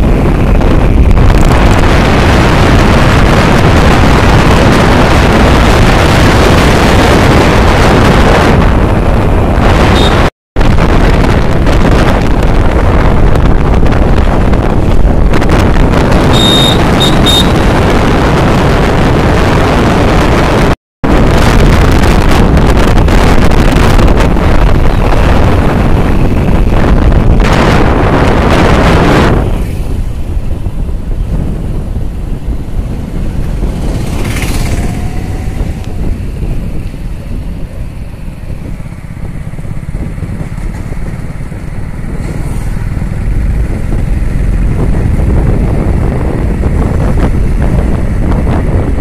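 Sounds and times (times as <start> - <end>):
wind buffeting microphone: 0.0 - 49.0
short high beeps: 16.3 - 17.6.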